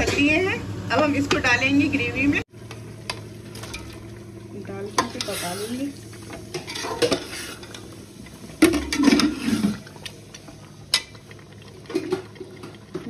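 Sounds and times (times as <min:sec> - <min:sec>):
metal spoon scraping a pot: 0:05.0 - 0:05.9, 0:06.5 - 0:07.8.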